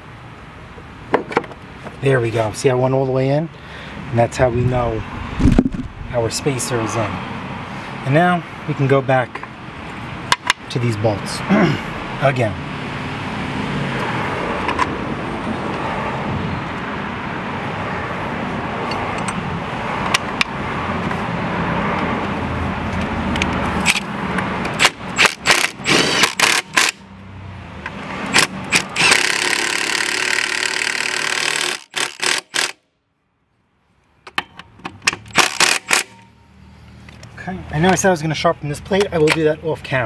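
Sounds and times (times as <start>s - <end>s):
power drill driving bolts: 24.7s - 27.0s, 28.3s - 32.8s, 35.1s - 36.2s.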